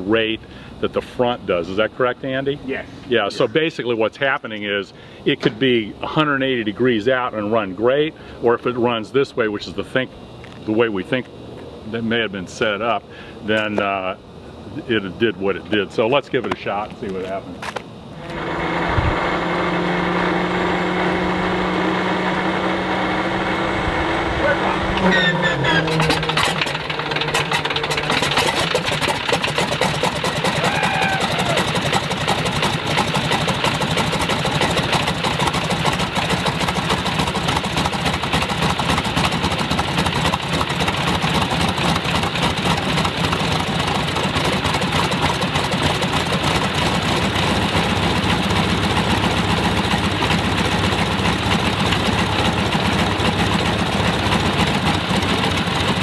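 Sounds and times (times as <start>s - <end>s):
radial aircraft engine idling: 23.9s - 56.0s.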